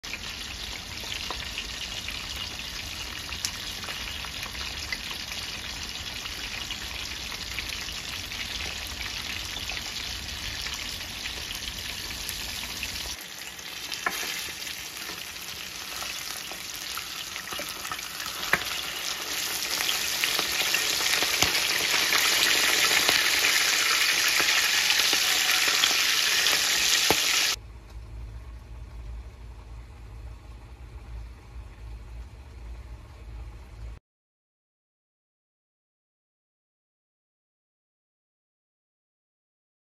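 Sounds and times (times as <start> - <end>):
fish sizzling in hot oil: 0.1 - 27.6
low hum: 27.6 - 34.0.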